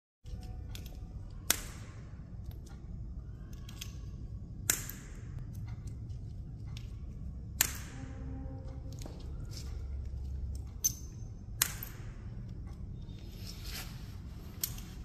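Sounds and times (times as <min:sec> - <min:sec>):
glass pieces clicking and clinking: 0:09.5 - 0:12.2.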